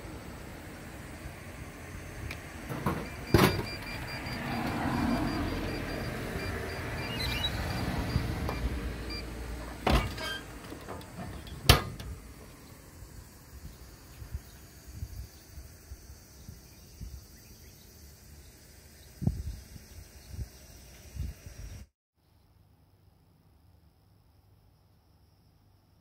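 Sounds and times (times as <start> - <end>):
vending mechanism whirring: 0.0 - 12.4
faint beeping: 3.0 - 10.4.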